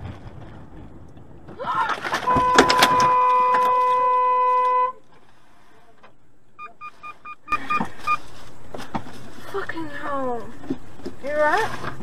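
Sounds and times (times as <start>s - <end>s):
loud steady pitched tone: 6.6s - 8.2s
short electronic beeps: 6.6s - 8.2s.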